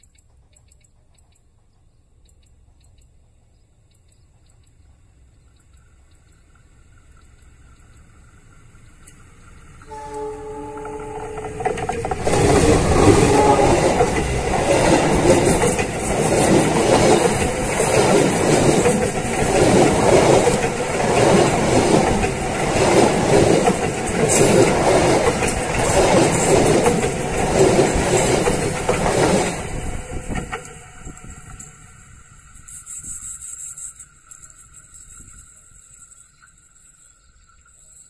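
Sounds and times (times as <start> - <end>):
train wheel clatter: 7.2 - 36.1
train carriages rushing overhead: 9.3 - 33.3.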